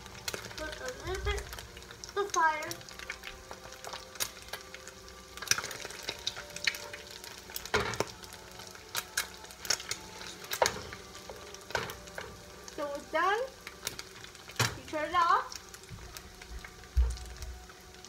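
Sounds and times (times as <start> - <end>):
eggs frying in a pan: 0.0 - 18.0.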